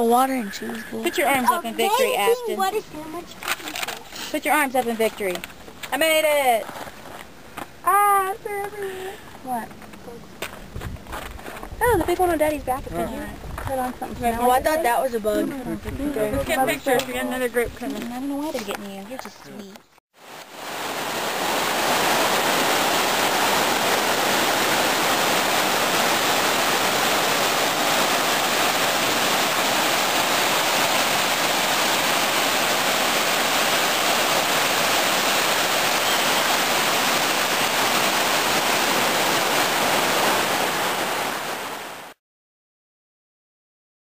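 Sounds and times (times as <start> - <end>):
river rapids rushing over rocks: 20.3 - 41.9.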